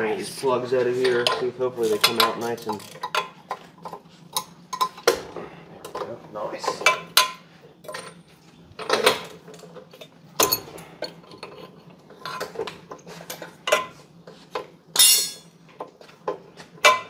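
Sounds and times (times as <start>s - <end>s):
wrench clinking on metal: 15.0s - 15.5s.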